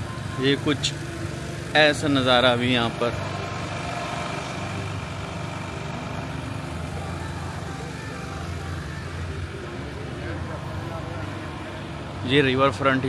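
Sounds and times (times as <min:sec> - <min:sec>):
motor engine humming: 0:00.0 - 0:13.0.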